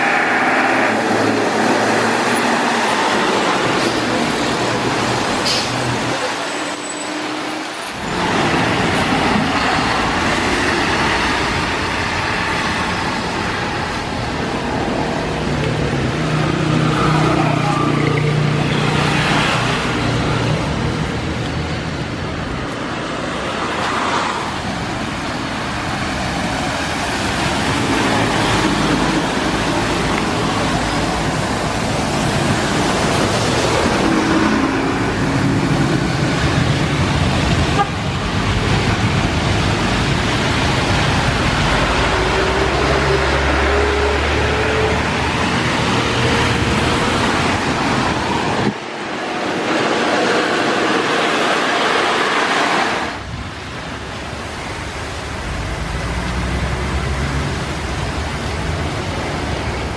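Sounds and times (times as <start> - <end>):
cars and buses passing: 0.0 - 59.9
tyre noise on wet road: 0.0 - 59.9.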